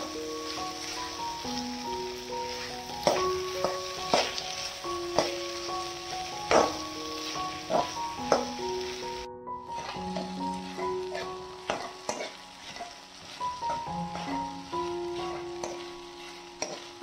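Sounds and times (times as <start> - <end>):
okra sizzling in oil: 0.0 - 17.0
soft background music: 0.0 - 17.0
spoon scraping a pan: 2.4 - 4.6, 7.5 - 8.6, 9.7 - 17.0.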